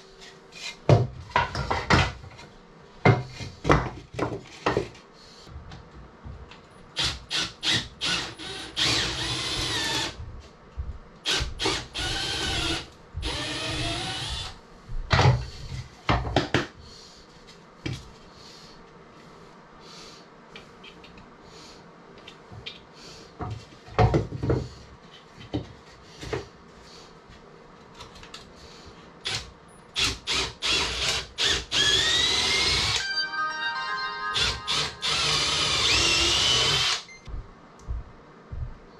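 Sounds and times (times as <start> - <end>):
power tool motor whine: 30.0 - 33.0, 34.4 - 37.1.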